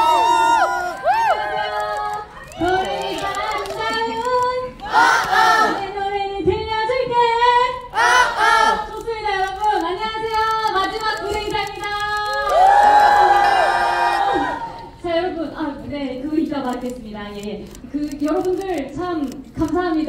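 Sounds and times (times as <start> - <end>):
crowd cheering: 0.0 - 4.2, 12.3 - 14.9.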